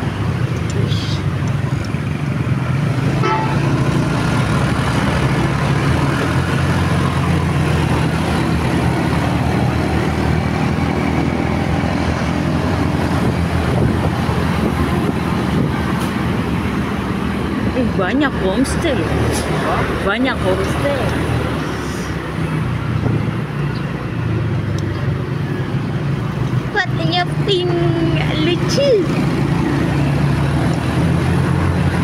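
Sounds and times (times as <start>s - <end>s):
motorcycle engine: 0.0s - 32.0s
vehicle horn toot: 3.2s - 3.7s.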